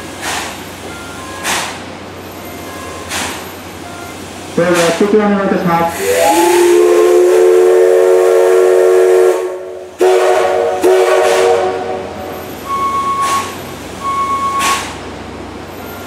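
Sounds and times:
steam hissing: 0:00.0 - 0:15.8
steam whistle blast: 0:05.9 - 0:14.9
short high beeps: 0:12.6 - 0:14.9.

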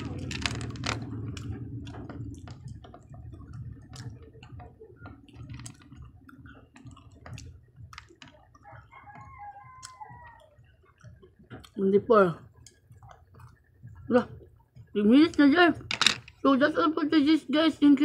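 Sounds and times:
chopsticks clicking on candy: 0:00.0 - 0:03.1.

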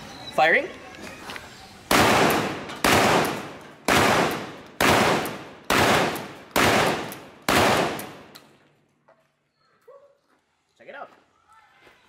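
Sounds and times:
shotgun shots: 0:01.9 - 0:08.3.

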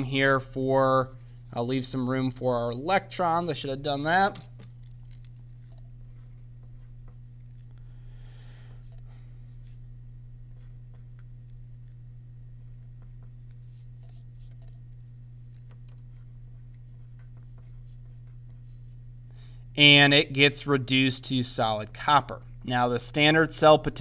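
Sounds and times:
steady low hum: 0:00.0 - 0:24.0
pencil scratching on paper: 0:01.0 - 0:02.4, 0:05.5 - 0:07.4, 0:12.6 - 0:14.8, 0:15.6 - 0:18.9.

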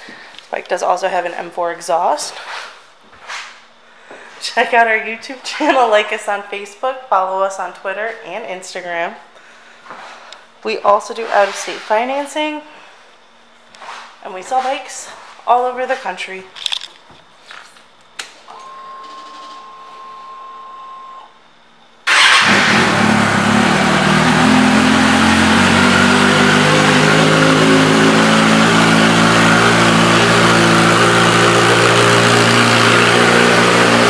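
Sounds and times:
quiet steady whine: 0:00.0 - 0:22.1.

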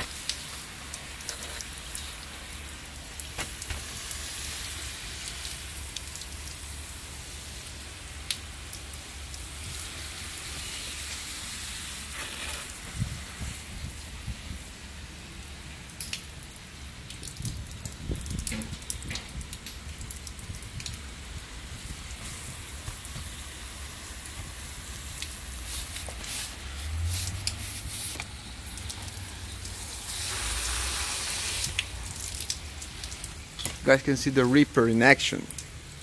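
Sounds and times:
water drips and clicks: 0:00.0 - 0:11.2, 0:12.6 - 0:36.0
water jets spraying on glass: 0:00.0 - 0:36.0.

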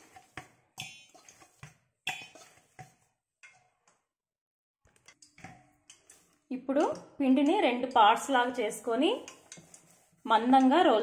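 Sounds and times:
dough squishing: 0:07.3 - 0:11.0.

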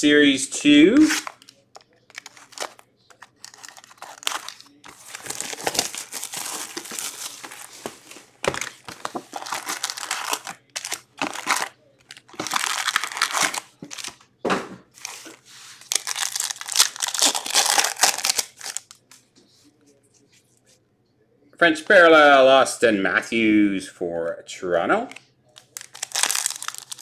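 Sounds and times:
plastic and foil wrappers crinkling: 0:00.9 - 0:14.3, 0:14.9 - 0:19.2, 0:25.6 - 0:27.0.

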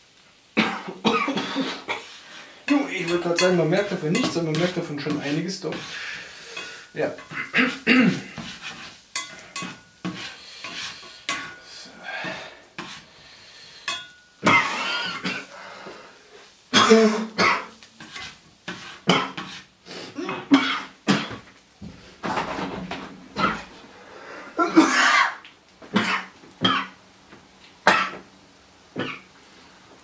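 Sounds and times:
spatula scraping in a frying pan: 0:01.7 - 0:15.0, 0:17.8 - 0:19.8.

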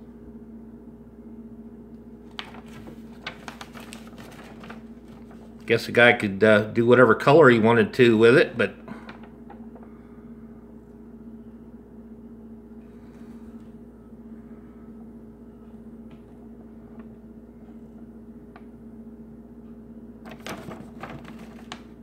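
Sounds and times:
electrical hum: 0:00.0 - 0:22.0
paper sheet rustling: 0:02.2 - 0:05.9, 0:20.3 - 0:22.0.

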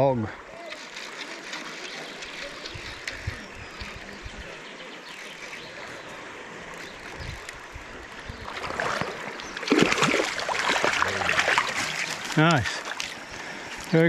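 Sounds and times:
creek rushing: 0:00.0 - 0:14.0
fish splashing at surface: 0:08.5 - 0:13.2.

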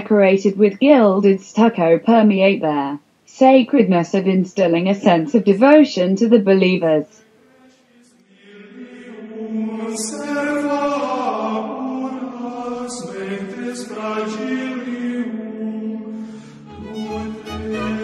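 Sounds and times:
chant in long held notes: 0:07.2 - 0:18.0
singer breaths: 0:16.2 - 0:16.7.

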